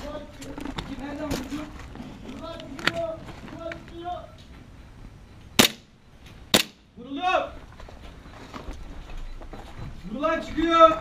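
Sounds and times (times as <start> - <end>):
airsoft pistol shots: 5.6 - 5.9, 6.5 - 6.8.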